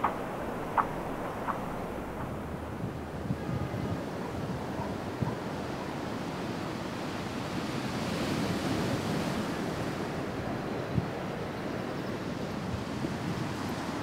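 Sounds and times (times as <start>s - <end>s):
wind rushing: 0.0s - 6.2s
distant sea surf: 0.0s - 14.0s.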